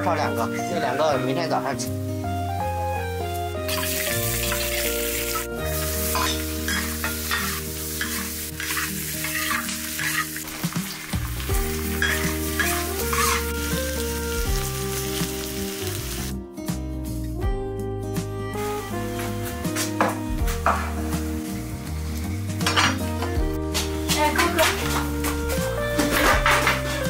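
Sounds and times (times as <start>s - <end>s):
background music with held notes: 0.0s - 27.0s
food sizzling in a wok: 3.3s - 16.4s, 18.6s - 19.9s, 20.6s - 23.2s
metal spatula scraping: 3.7s - 11.0s, 11.8s - 13.8s, 26.0s - 27.0s.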